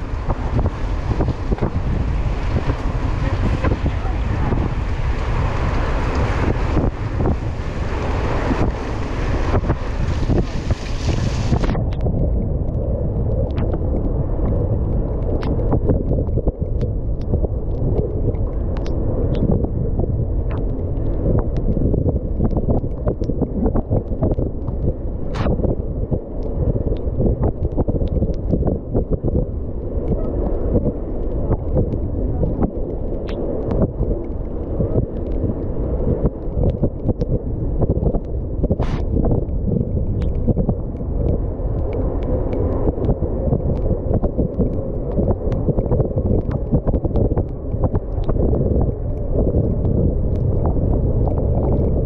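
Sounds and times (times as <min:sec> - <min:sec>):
tyres on wet asphalt: 0:00.0 - 0:11.8
wind buffeting microphone: 0:00.0 - 0:52.0.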